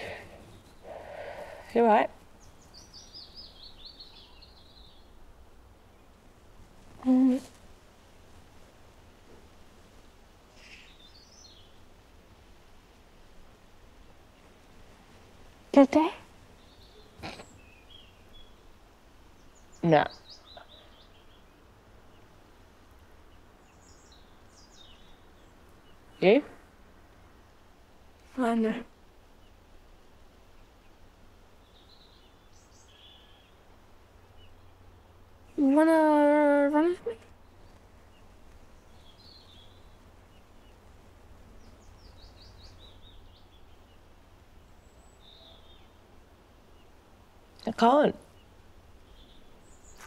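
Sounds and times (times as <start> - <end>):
faint bird chirps: 0.0 - 5.2, 10.5 - 11.9, 19.3 - 22.4, 31.6 - 35.8, 41.5 - 47.0
small bird chirping: 0.0 - 5.2, 10.5 - 11.9, 15.8 - 26.6, 36.5 - 50.0
low outdoor rumble: 0.0 - 50.0.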